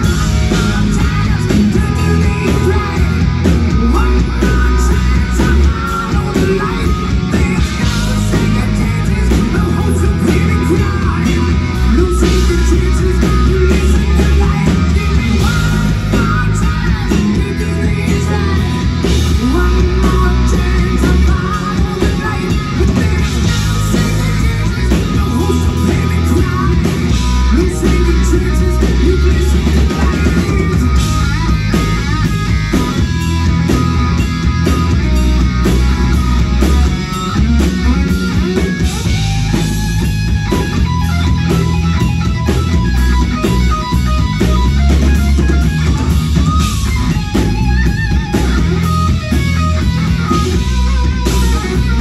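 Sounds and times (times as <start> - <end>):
man singing: 0.0 - 32.3
bass guitar: 0.0 - 52.0
drum kit: 0.0 - 52.0
electric guitar: 0.0 - 52.0.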